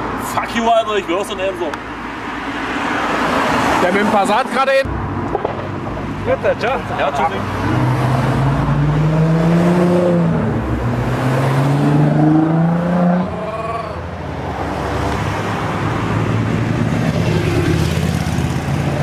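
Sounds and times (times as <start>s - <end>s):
car engine revving: 5.2s - 19.0s.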